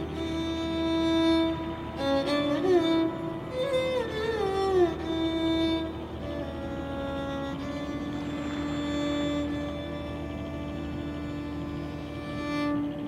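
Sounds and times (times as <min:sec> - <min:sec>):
slow sliding melody: 0:00.0 - 0:13.0.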